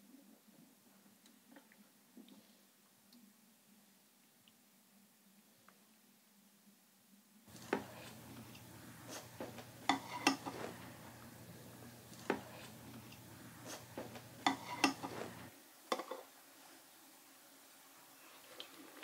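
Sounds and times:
low steady hum: 0:00.0 - 0:18.8
spoons clinking against bowls: 0:09.8 - 0:10.6, 0:14.4 - 0:15.2.

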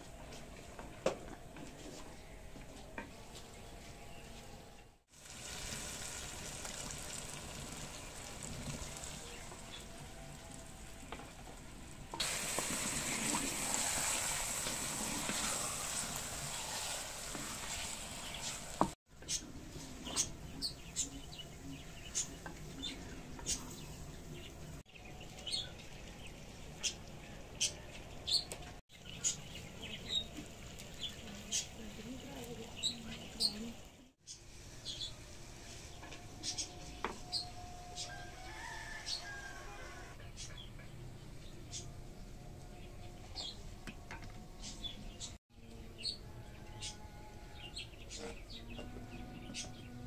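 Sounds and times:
chicken sizzling in a pot: 0:05.1 - 0:19.0, 0:28.9 - 0:40.1.

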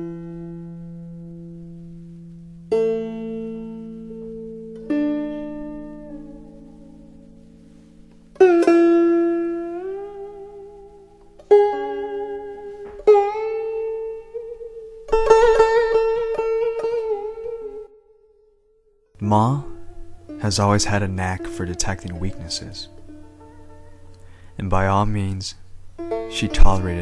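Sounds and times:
plucked string instrument melody: 0:00.0 - 0:27.0.

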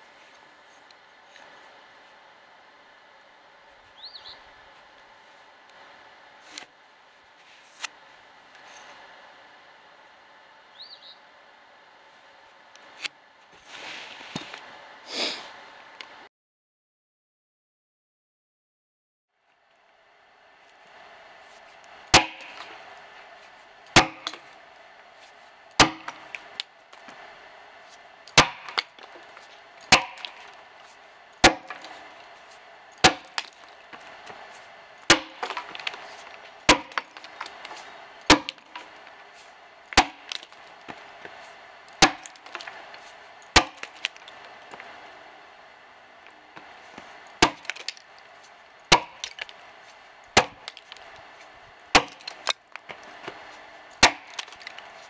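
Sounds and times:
axe chopping into log: 0:22.1 - 0:22.7, 0:24.0 - 0:24.4, 0:25.8 - 0:26.4, 0:28.3 - 0:29.1, 0:29.9 - 0:30.5, 0:31.4 - 0:32.0, 0:33.0 - 0:33.6, 0:35.1 - 0:37.7, 0:38.3 - 0:38.9, 0:40.0 - 0:41.0, 0:42.0 - 0:42.8, 0:43.6 - 0:44.3, 0:47.4 - 0:48.0, 0:48.9 - 0:49.6, 0:50.4 - 0:51.0, 0:52.0 - 0:53.4, 0:54.0 - 0:54.8.

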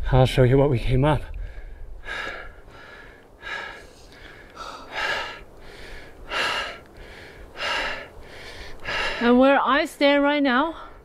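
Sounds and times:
person breathing hard: 0:01.4 - 0:09.4.

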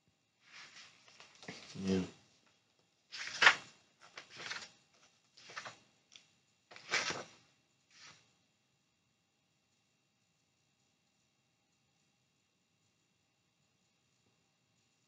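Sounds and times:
book pages rustling: 0:00.5 - 0:02.0, 0:03.1 - 0:08.2.

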